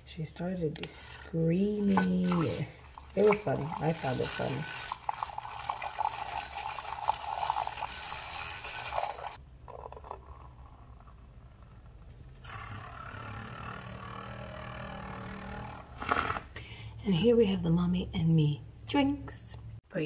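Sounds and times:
milk frother whirring: 1.2 - 10.8, 11.8 - 16.4
coffee pouring: 1.6 - 12.3.

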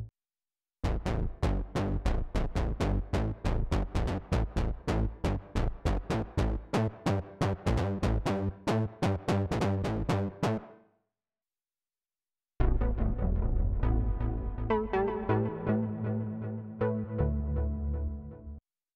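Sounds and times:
synthesizer bass line: 12.6 - 18.6.

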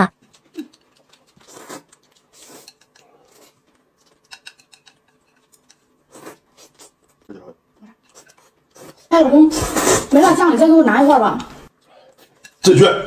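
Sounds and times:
slurping noodles: 1.2 - 3.6
chopsticks clicking on ceramic: 4.0 - 5.9.

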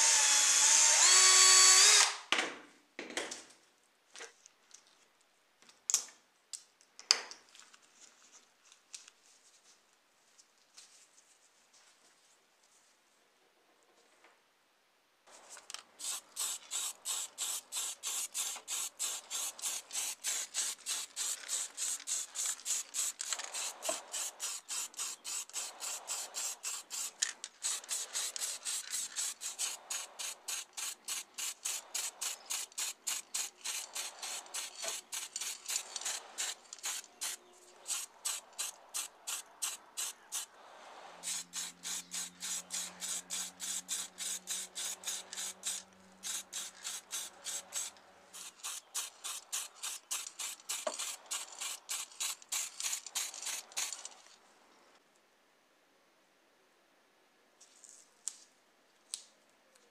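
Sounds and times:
spray paint can hissing: 15.9 - 40.5, 41.2 - 54.2.

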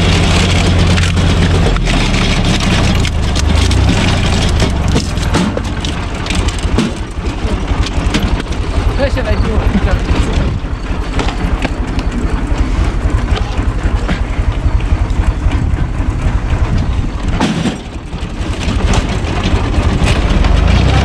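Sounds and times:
logs cracking as they split: 0.0 - 9.0
tractor diesel engine under load: 0.0 - 21.0.

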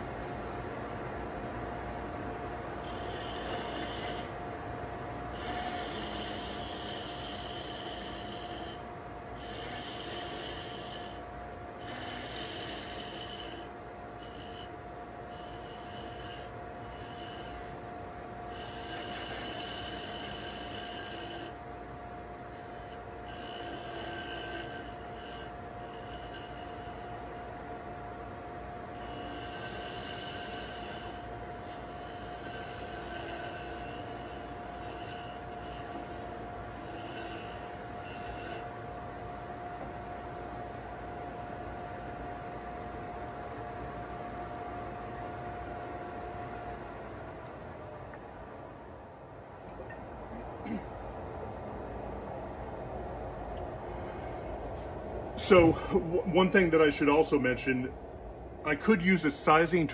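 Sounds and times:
tool scraping spinning wood: 2.8 - 4.4, 5.3 - 21.6, 22.4 - 27.9, 29.0 - 38.8
wood lathe whining: 2.8 - 4.4, 5.3 - 11.2, 11.8 - 17.8, 18.5 - 21.6, 22.5 - 27.8, 29.0 - 38.8.

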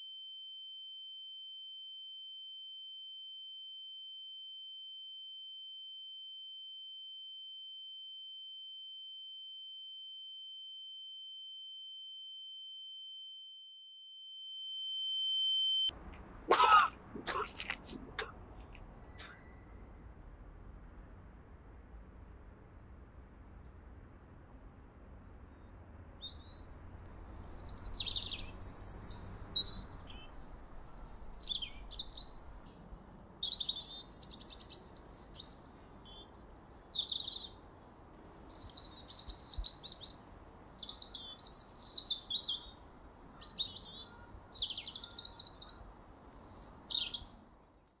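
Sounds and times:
small birds chirping: 16.7 - 19.9, 25.5 - 48.0.

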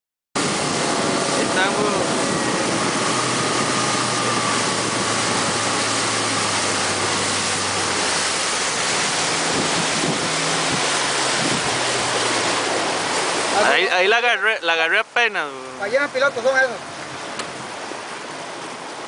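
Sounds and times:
wind on microphone: 0.4 - 13.6
boat engine humming: 0.4 - 19.0
sea water washing around boat: 0.4 - 19.0.

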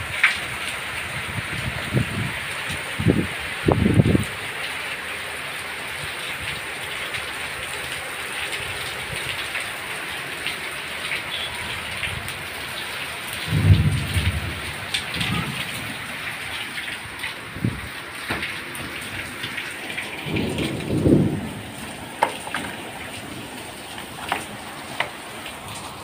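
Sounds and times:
heavy rain pouring: 0.0 - 26.0
thunder rumbling: 13.4 - 19.3, 19.9 - 23.6.

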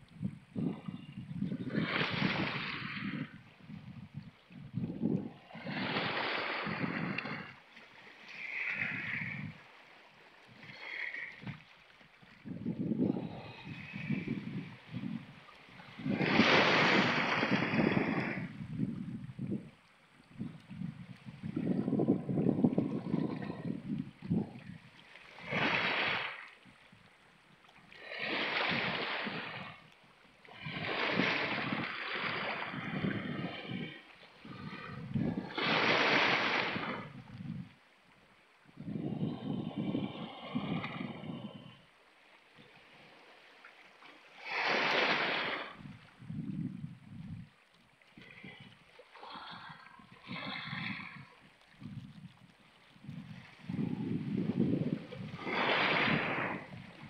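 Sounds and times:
wind buffeting microphone: 0.0 - 7.6, 8.5 - 9.6, 12.3 - 27.1, 30.6 - 37.8, 38.7 - 41.8, 45.0 - 47.6, 49.5 - 57.0
waves washing over rocks: 15.9 - 18.8, 25.2 - 26.5, 28.0 - 29.8, 30.5 - 37.2, 44.3 - 46.3, 53.0 - 57.0.

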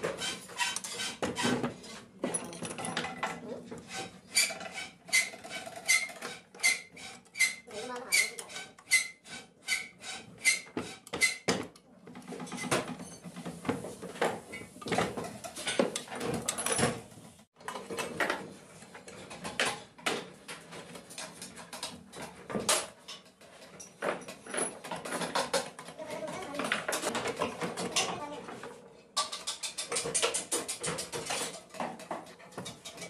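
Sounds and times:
metal parts clattering and scraping: 0.0 - 9.9, 14.8 - 18.4, 20.7 - 28.2.

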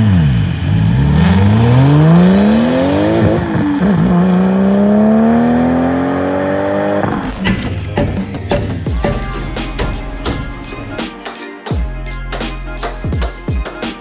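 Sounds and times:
diesel engine at full throttle: 0.0 - 8.2.

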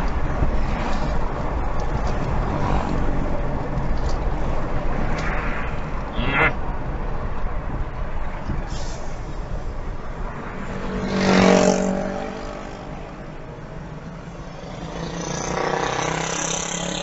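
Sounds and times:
road noise: 0.0 - 17.0
vehicle passing: 0.6 - 8.3, 9.2 - 17.0.

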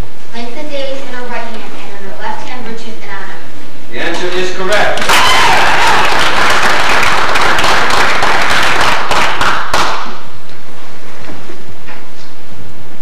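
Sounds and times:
crowd applauding: 4.0 - 10.2.

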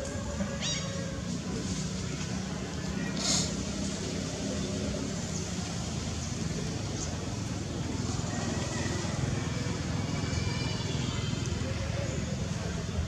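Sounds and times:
low rumble with hiss: 0.0 - 13.0
faint high-pitched calls: 0.4 - 1.3.

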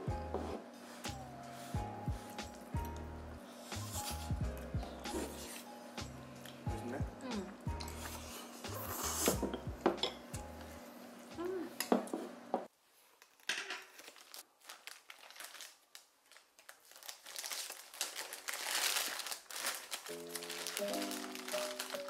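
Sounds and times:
background music: 0.0 - 11.6, 20.0 - 22.0
plastic bag crinkling: 13.2 - 22.0.

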